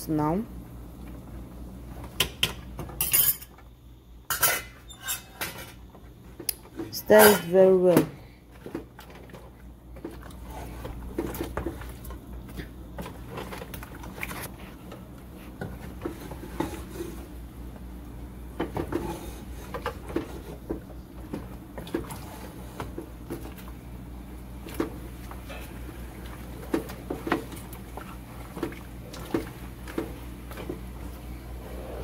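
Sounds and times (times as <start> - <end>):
low steady hum: 0.0 - 32.0.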